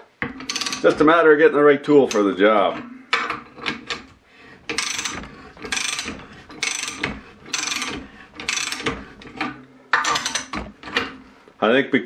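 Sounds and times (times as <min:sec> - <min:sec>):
ratchet wrench clicking: 0:04.7 - 0:08.9.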